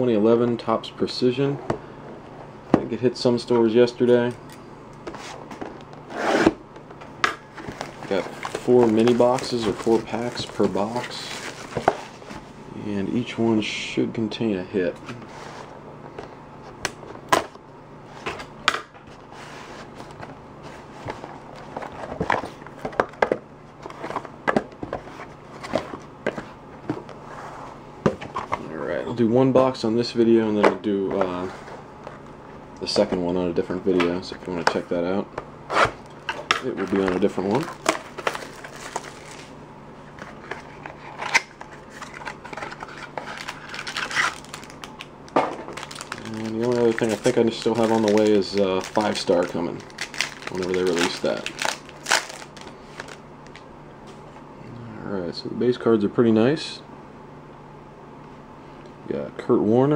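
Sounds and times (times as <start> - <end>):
wrapper crinkling and rustling: 36.6 - 39.5, 41.2 - 53.6
packaging snapping: 41.2 - 53.6.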